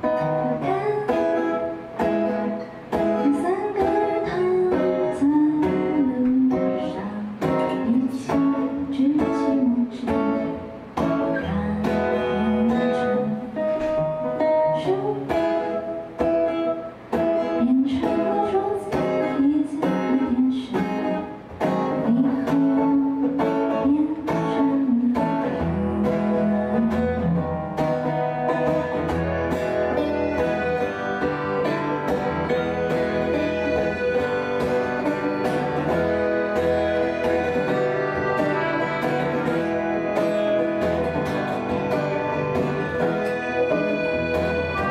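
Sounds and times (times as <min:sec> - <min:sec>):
woman singing: 0:00.0 - 0:16.0, 0:17.3 - 0:28.1
guitar strummed: 0:00.0 - 0:44.9
button accordion: 0:29.9 - 0:44.9.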